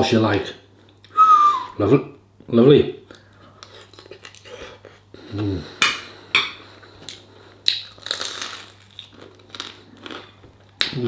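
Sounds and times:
man humming mm: 0:05.2 - 0:05.9.

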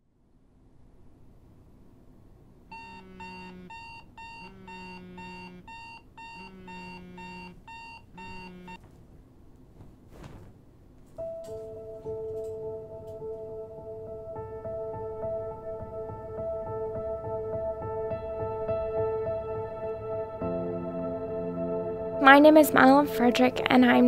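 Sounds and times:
smartphone alarm beeping: 0:02.7 - 0:08.8
brief rustle: 0:09.8 - 0:11.7
soft music: 0:11.1 - 0:24.0.

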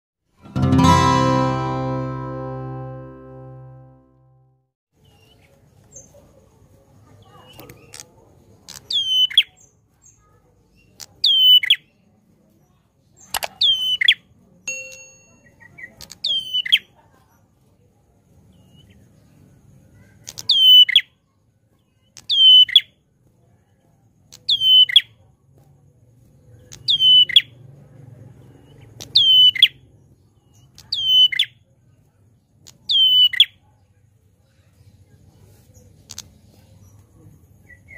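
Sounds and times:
bird singing sharp whistled call: 0:24.5 - 0:25.1, 0:26.8 - 0:27.5, 0:29.2 - 0:29.8, 0:30.9 - 0:31.5, 0:32.9 - 0:33.5.

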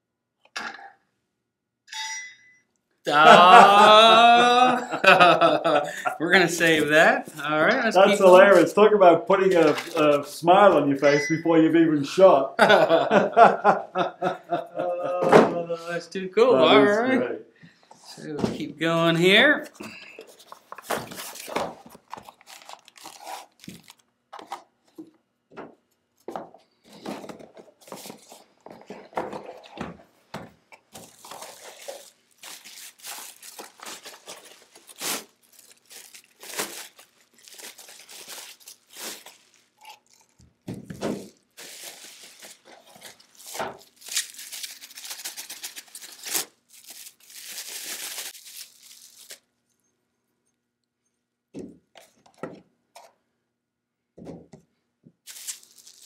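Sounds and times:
plastic and bubble wrap crinkling: 0:06.3 - 0:08.8, 0:09.4 - 0:10.8, 0:20.1 - 0:24.7, 0:27.0 - 0:29.8, 0:30.8 - 0:49.5, 0:55.3 - 0:56.0
cardboard boxes opened: 0:20.2 - 0:24.6, 0:26.9 - 0:29.8, 0:30.9 - 0:40.2.

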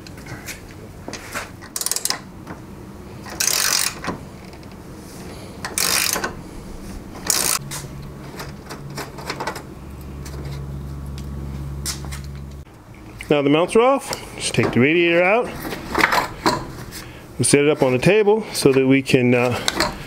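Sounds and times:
ratchet wrench clicking: 0:01.6 - 0:02.2, 0:03.3 - 0:04.1, 0:05.6 - 0:06.4, 0:07.2 - 0:07.6.

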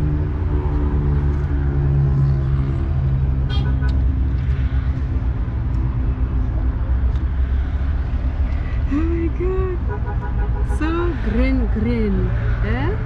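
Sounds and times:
car horn toot: 0:03.5 - 0:04.0, 0:09.9 - 0:10.8.

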